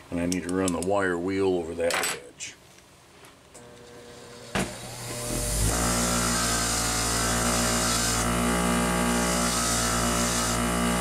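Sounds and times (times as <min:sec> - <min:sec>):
electric wire wheel spinning: 0:03.6 - 0:11.0.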